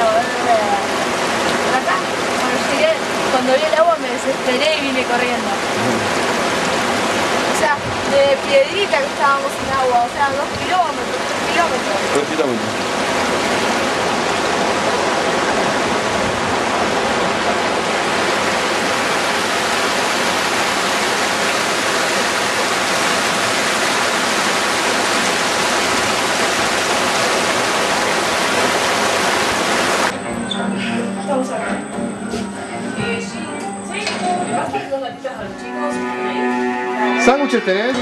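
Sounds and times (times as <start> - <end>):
stream rushing over boulders: 0.0 - 30.1.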